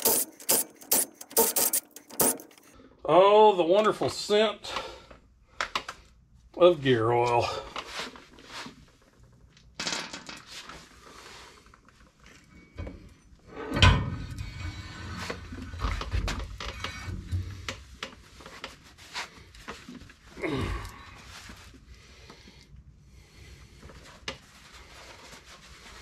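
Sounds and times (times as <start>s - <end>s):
knocks and clicks: 0.0s - 2.7s
metal parts clinking: 0.0s - 2.7s.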